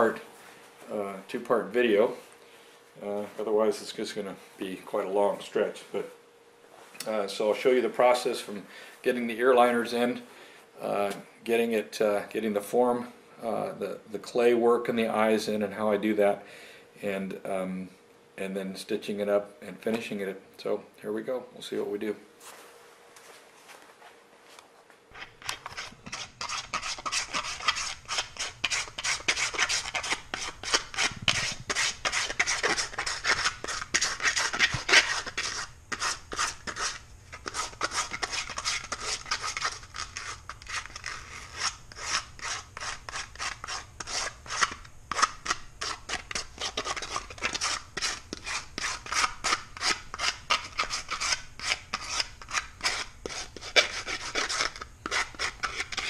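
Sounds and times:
hand file rasping on plastic: 25.2s - 56.0s.

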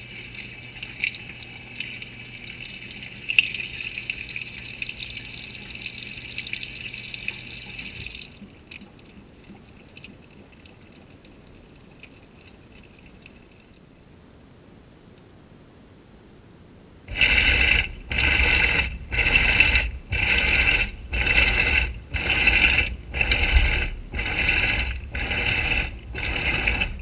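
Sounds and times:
water gushing into washer tub: 0.0s - 11.3s, 17.1s - 27.0s
low steady hum: 0.0s - 27.0s.

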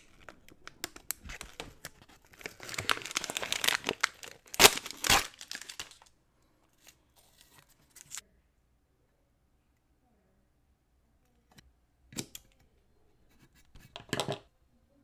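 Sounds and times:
paper and tape peeling: 6.8s - 8.2s.

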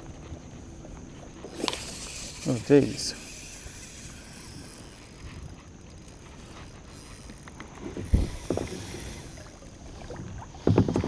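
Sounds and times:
knocks against kayak: 10.6s - 11.0s.

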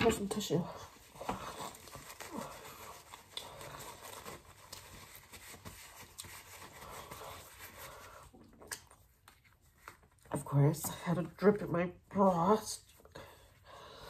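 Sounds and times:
paper tissue rustling: 0.0s - 8.4s.

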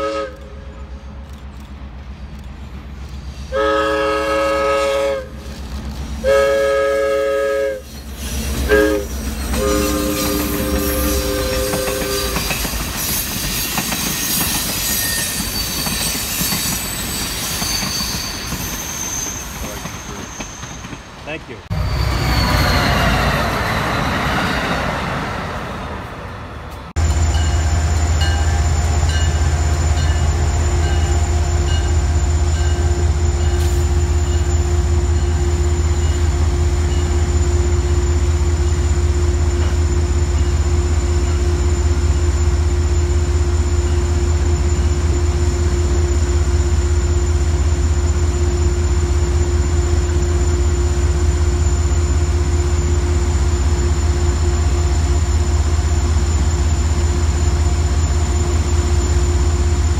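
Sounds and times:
passing train: 0.0s - 59.9s
freight cars rolling past: 16.3s - 34.7s.

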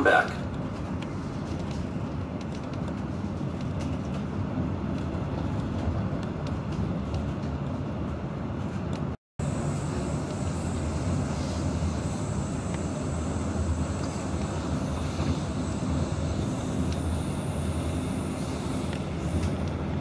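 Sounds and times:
train rumble inside carriage: 0.0s - 20.0s
thin high whine: 9.4s - 19.8s.

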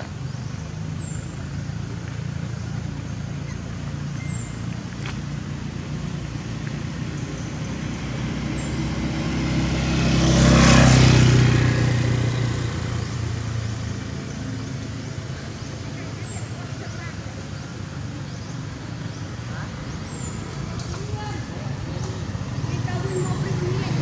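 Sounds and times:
vehicle passing by: 0.0s - 24.0s.

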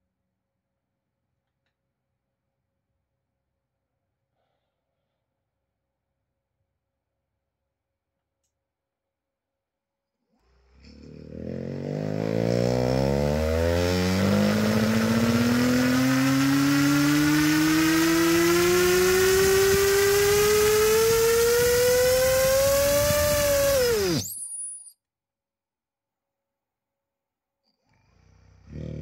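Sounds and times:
electric motor and propeller whine: 10.6s - 24.9s.

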